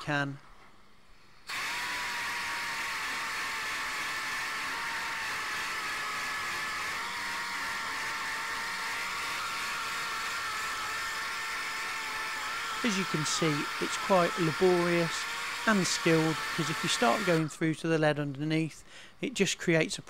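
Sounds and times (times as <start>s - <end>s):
rotary sander whine on metal: 1.5s - 17.5s.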